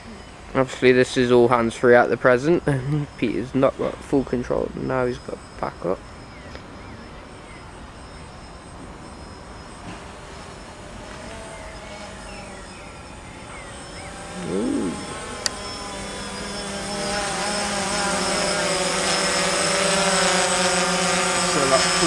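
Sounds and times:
drone propellers humming: 0:01.5 - 0:22.0
short wavering sound: 0:14.3 - 0:15.2.

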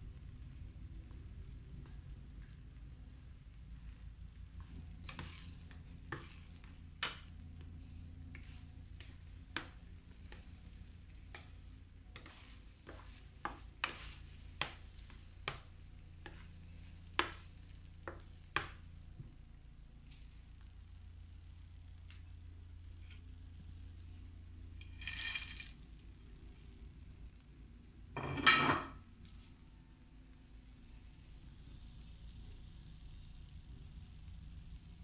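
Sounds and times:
soft sizzle: 0:00.0 - 0:35.0
spoon scraping a frying pan: 0:05.1 - 0:07.3, 0:12.2 - 0:14.8, 0:24.8 - 0:25.7.

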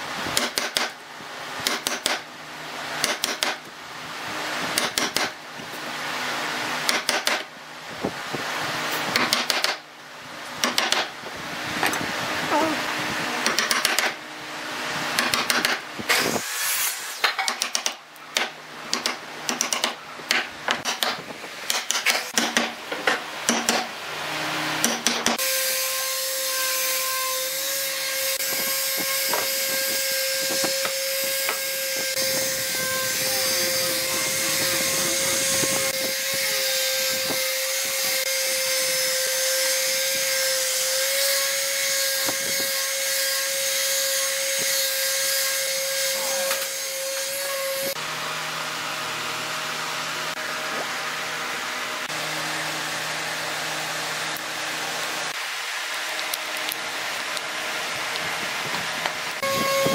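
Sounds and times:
power tool whining: 0:28.4 - 0:38.4.

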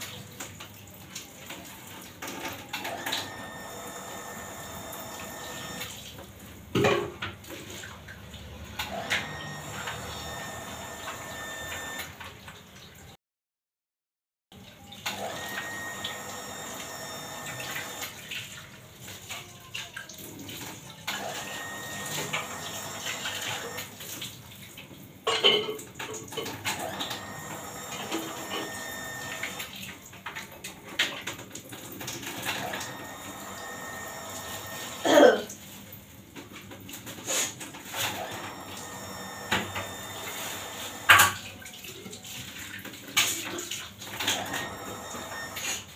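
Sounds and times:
dishes and pans clinking: 0:06.7 - 0:07.4, 0:25.3 - 0:26.8
tap running into sink: 0:40.7 - 0:41.5.

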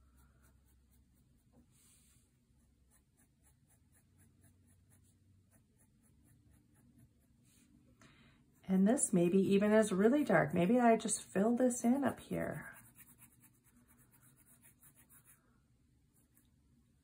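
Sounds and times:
marker scratching on paper: 0:00.0 - 0:07.7, 0:11.9 - 0:15.4.

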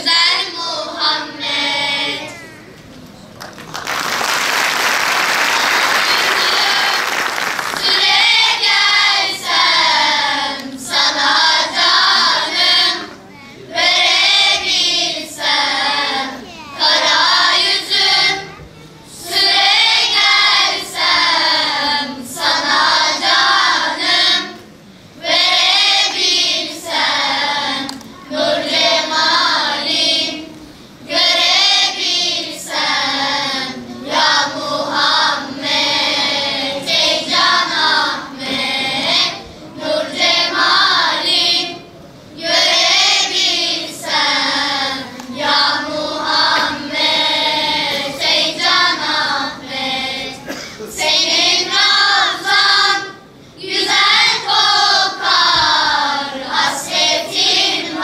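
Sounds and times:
children's choir singing: 0:00.0 - 0:02.7, 0:04.1 - 0:58.0
loud rush of noise: 0:03.4 - 0:10.3.

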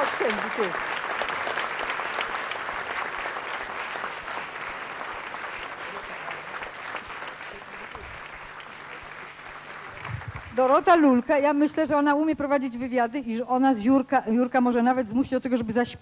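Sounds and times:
audience applauding: 0:00.0 - 0:11.2.

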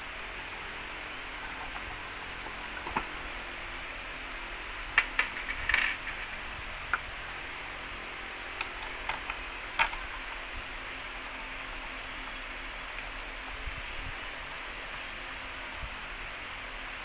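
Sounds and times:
steady hiss: 0:00.0 - 0:17.0
clicks and knocks of tricycle parts: 0:08.6 - 0:10.1.

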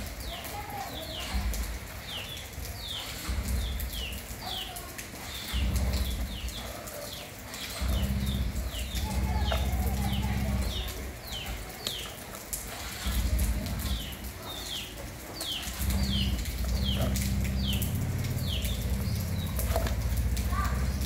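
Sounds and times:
small birds chirping: 0:00.0 - 0:21.0
low rumble: 0:05.5 - 0:06.7, 0:07.7 - 0:11.2, 0:15.7 - 0:21.0.

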